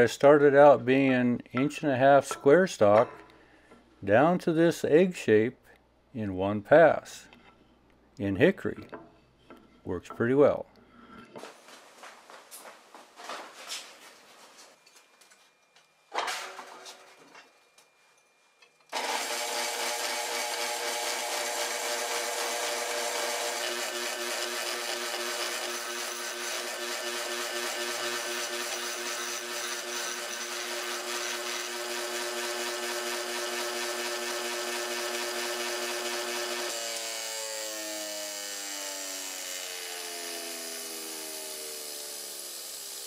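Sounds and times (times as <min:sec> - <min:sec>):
bench grinder grinding metal: 0:18.9 - 0:43.0.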